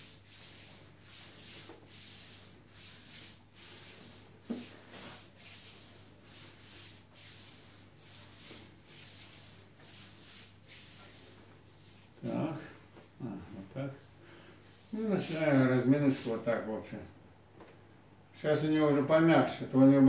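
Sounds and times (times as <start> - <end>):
hands rubbing on bare legs: 0.0 - 16.4.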